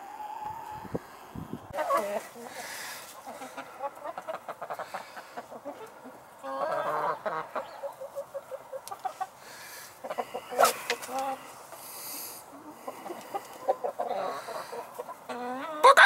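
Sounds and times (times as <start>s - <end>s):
chickens clucking: 0.0s - 16.0s
loud chicken call: 9.1s - 16.0s.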